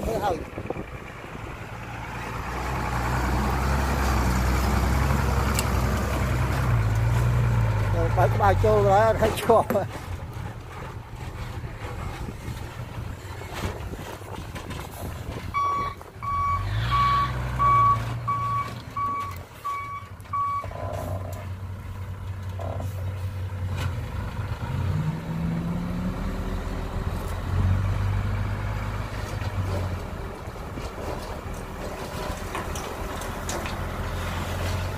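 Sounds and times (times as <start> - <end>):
diesel engine running: 0.0 - 34.9
truck backup alarm beeping: 15.5 - 20.8.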